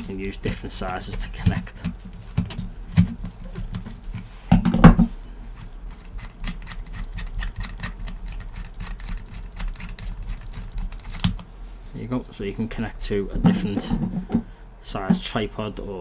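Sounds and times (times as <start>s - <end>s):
small clicks and scrapes: 5.6s - 11.5s.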